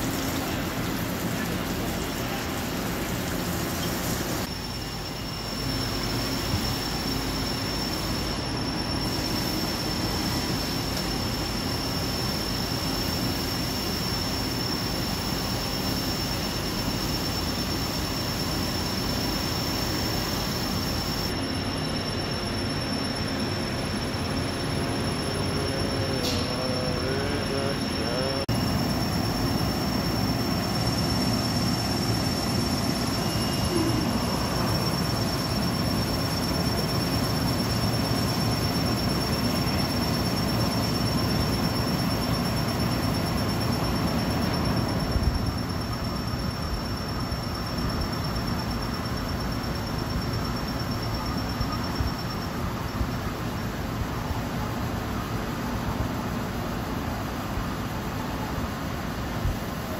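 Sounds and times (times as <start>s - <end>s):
coolant spraying: 0.0s - 4.5s
thin high whine: 0.0s - 56.6s.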